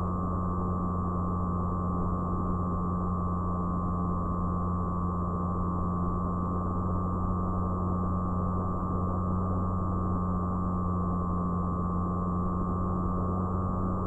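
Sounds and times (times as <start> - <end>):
model plane motor drone: 0.0 - 14.0.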